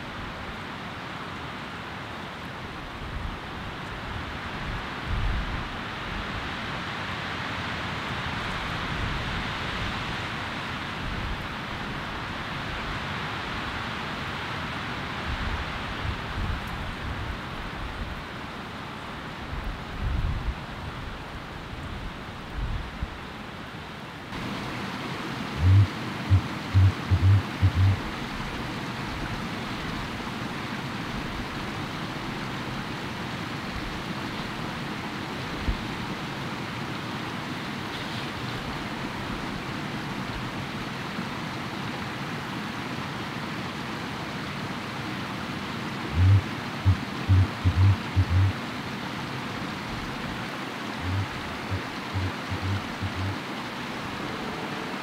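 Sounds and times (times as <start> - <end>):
steady rushing background: 25.6 - 28.0, 46.1 - 48.6, 51.0 - 53.4
grouse hooting: 46.1 - 48.6, 51.0 - 53.4.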